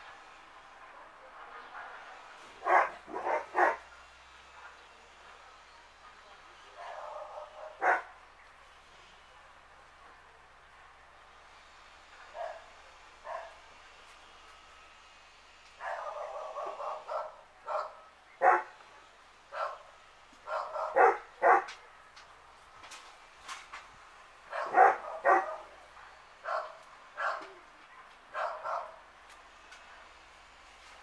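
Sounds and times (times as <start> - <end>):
dog barking: 2.6 - 3.8, 6.8 - 8.1, 12.4 - 13.6, 15.8 - 18.8, 19.5 - 19.8, 20.4 - 21.8, 24.5 - 25.8, 26.4 - 29.0.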